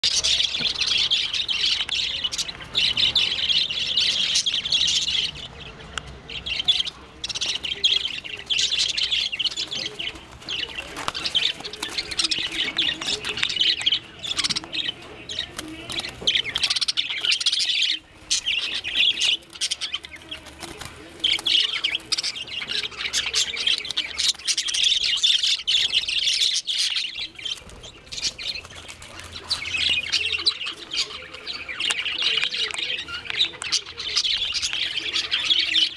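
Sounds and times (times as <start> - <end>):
parakeets screeching: 0.0 - 35.9
wings beating: 0.0 - 35.9.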